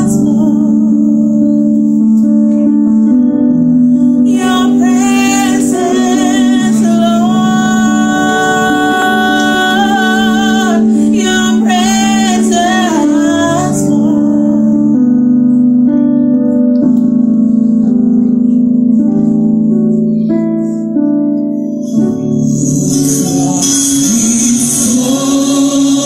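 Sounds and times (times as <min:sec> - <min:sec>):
woman singing into microphone: 0:00.0 - 0:01.8, 0:04.2 - 0:15.0
held instrumental chords: 0:00.0 - 0:26.0.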